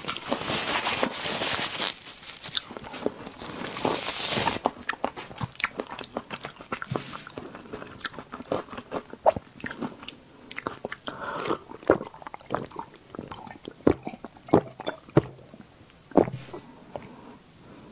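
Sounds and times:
chewing with wet mouth clicks: 4.6s - 17.1s
sipping and gulping drink: 10.6s - 17.2s.

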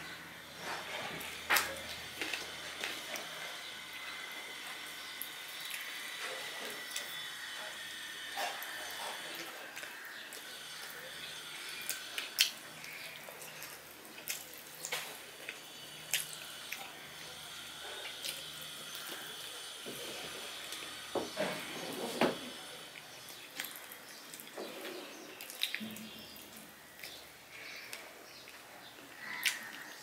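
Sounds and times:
wet squelches of hand mixing food: 0.5s - 21.0s, 21.6s - 30.0s
chewing and lip smacks: 11.9s - 16.9s, 25.4s - 27.2s.

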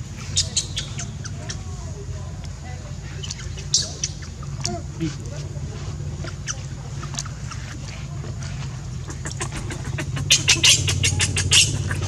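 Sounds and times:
steady low hum: 0.0s - 12.0s
baby monkey squealing: 0.4s - 1.5s, 9.1s - 12.0s.

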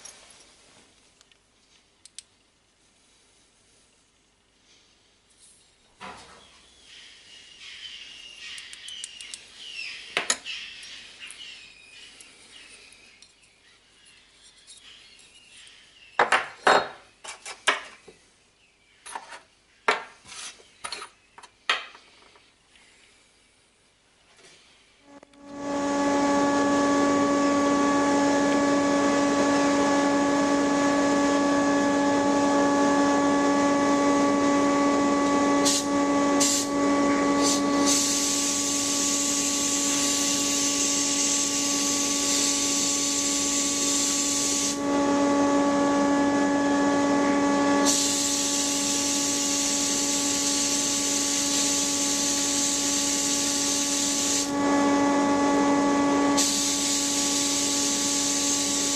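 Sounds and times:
motor hum: 25.0s - 58.9s
blast gun hissing: 35.6s - 44.8s, 47.8s - 54.6s, 56.3s - 58.9s.

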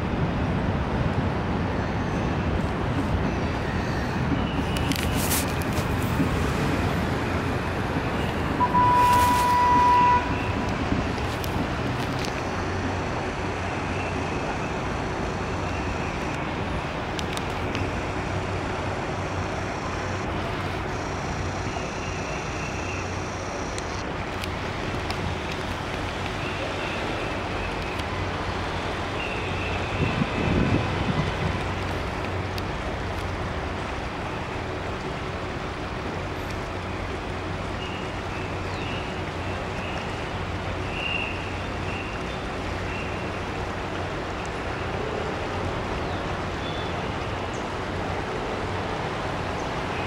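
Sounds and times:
city traffic noise: 0.0s - 50.0s
car horn: 8.6s - 10.6s.

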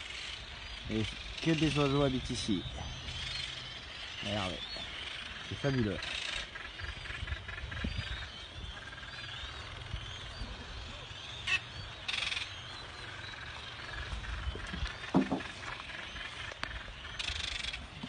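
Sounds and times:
wind rumble on microphone: 0.0s - 12.1s, 12.7s - 18.0s
seabirds chirping cries: 0.0s - 18.0s
brief knock: 15.1s - 15.5s.

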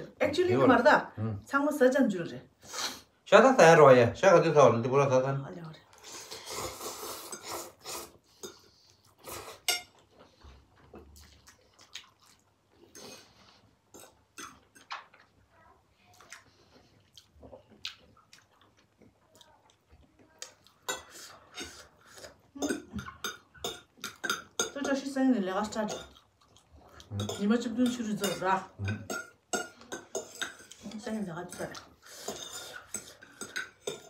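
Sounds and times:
utensils clinking on porcelain bowls: 22.6s - 26.2s, 27.2s - 34.0s.

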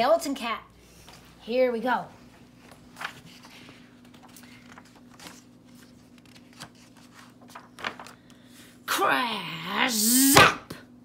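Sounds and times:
paper pages rustling: 2.3s - 8.5s.

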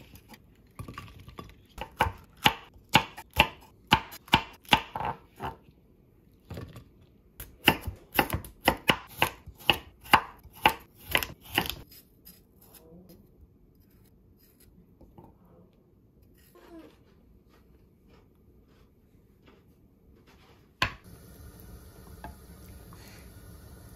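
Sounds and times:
knife chopping on wooden board: 1.8s - 5.6s, 7.4s - 11.9s.

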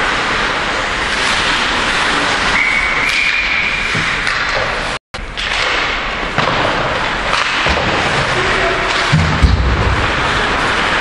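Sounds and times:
ice rink noise: 0.0s - 11.0s
referee's whistle: 2.6s - 4.0s.

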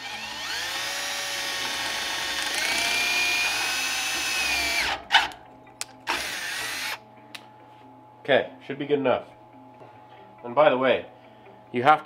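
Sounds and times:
cordless drill motor whine: 0.0s - 5.0s, 6.1s - 7.0s.

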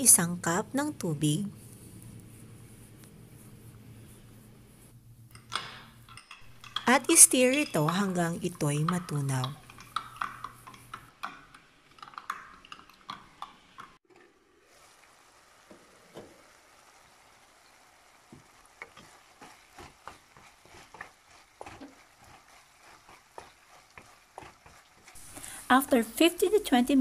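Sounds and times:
metal spoon clinking in glass: 5.3s - 8.0s
wooden spoon tapping and scraping: 5.3s - 14.0s, 18.4s - 25.5s
meat sizzling in a pan: 14.3s - 27.0s.

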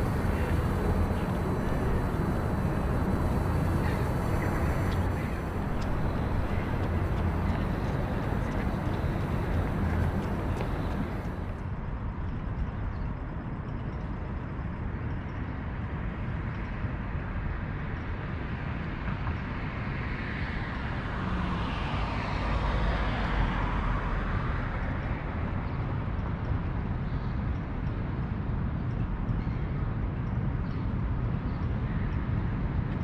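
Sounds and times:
vehicle passing: 0.0s - 11.6s
city traffic rumble: 0.0s - 33.0s.

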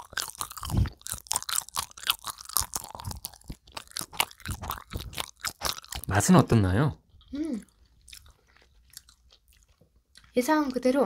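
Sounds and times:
chewing crunchy snack: 0.0s - 6.4s, 7.2s - 10.5s.

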